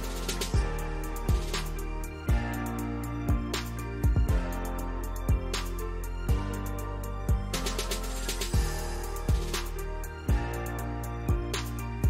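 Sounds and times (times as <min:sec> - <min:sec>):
background music with steady beat: 0:00.0 - 0:12.0.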